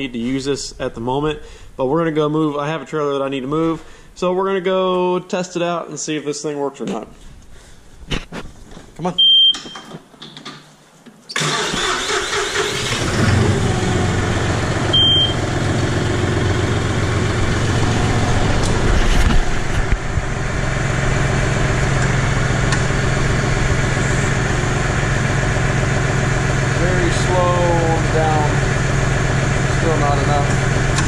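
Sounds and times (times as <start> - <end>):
tractor engine cranking and running: 11.3 - 31.0
short beep: 14.9 - 15.4.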